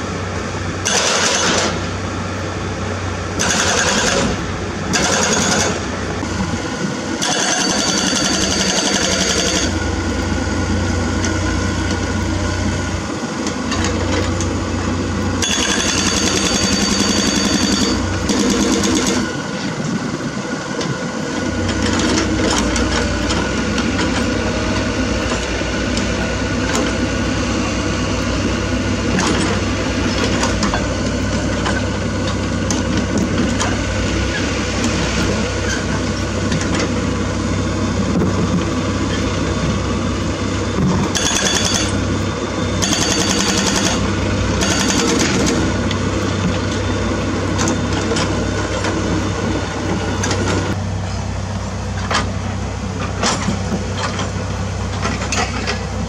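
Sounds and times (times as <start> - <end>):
excavator engine running: 0.0 - 56.0
hydraulic breaker hammering rock: 0.8 - 1.8, 3.4 - 5.8, 7.2 - 9.8, 15.4 - 19.3, 40.8 - 42.0, 42.8 - 45.7.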